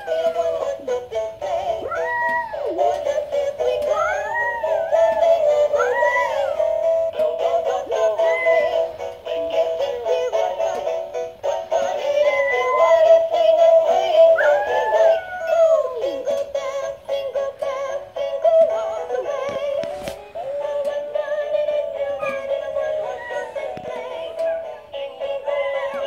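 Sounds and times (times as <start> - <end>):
dog howling: 0.0 - 0.7, 1.8 - 2.8, 3.9 - 6.7, 12.2 - 13.0, 14.4 - 16.0, 22.2 - 23.7, 24.3 - 26.0
toys singing synthesized carol: 0.0 - 26.0.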